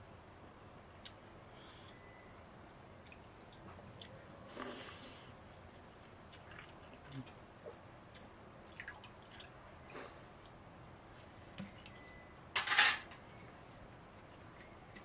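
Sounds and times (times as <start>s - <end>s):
person eating wetly by hand: 6.0s - 10.5s.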